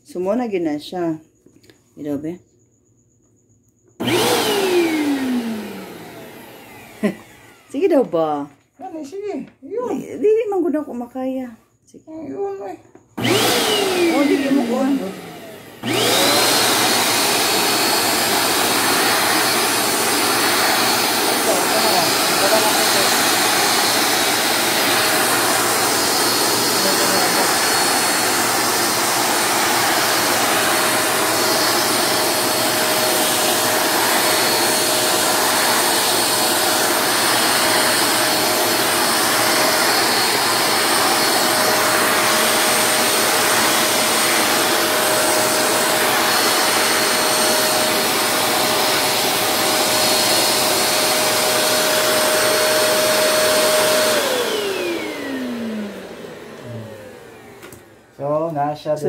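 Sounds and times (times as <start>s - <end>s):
vacuum cleaner running: 3.9s - 8.5s, 12.4s - 59.0s
vacuum nozzle on tile floor: 3.9s - 9.2s, 12.3s - 59.0s
vacuum motor spinning down: 4.0s - 8.4s, 13.2s - 59.0s.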